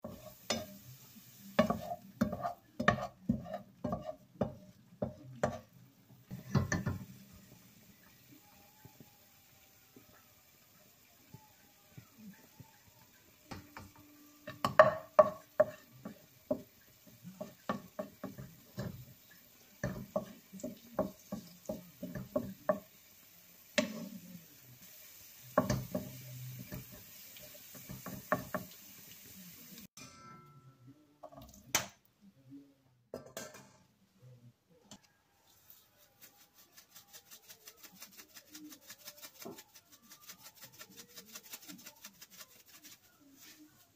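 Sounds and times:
wooden spatula scraping a frying pan: 1.6 - 5.7.

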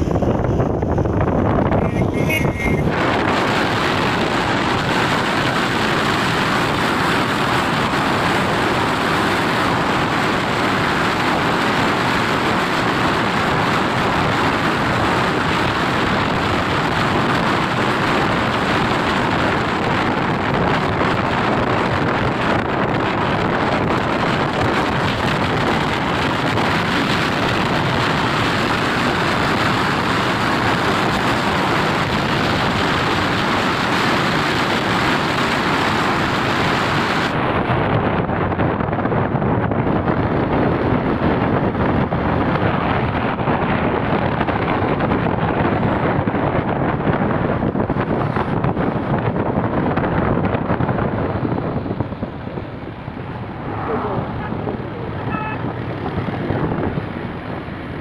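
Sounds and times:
motorcycle road noise: 0.0 - 58.0
wind rush: 0.0 - 58.0.

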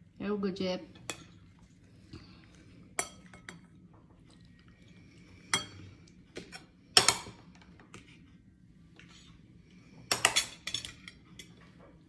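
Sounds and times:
cutlery clinking on plate: 10.1 - 11.6.

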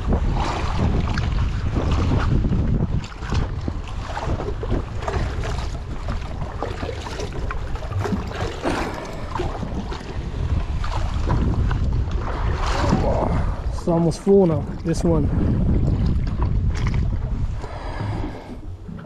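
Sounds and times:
steady low rumble: 0.0 - 19.0
wind buffeting microphone: 0.0 - 19.0
knocks and rustles of fishing gear: 16.2 - 17.2.

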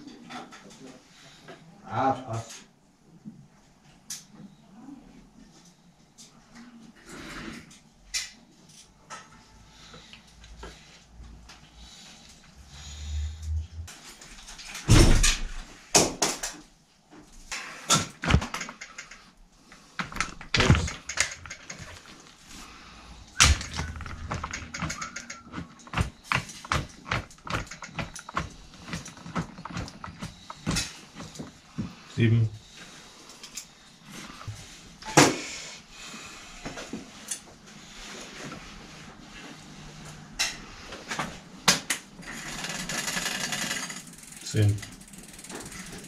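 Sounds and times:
clicks and metallic knocks: 23.4 - 31.3.

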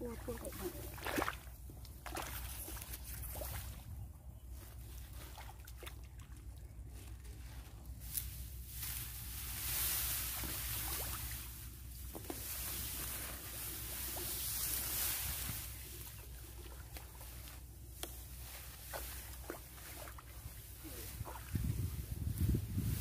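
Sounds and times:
small splashes and squelches: 0.0 - 3.9, 4.6 - 7.7, 12.2 - 21.7
rice stalks rustling: 6.9 - 23.0.

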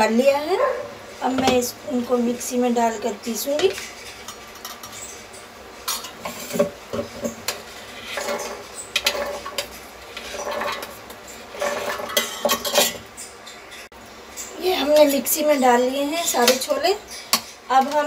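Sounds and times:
steel spoon scraping steel bowl: 5.9 - 13.9.

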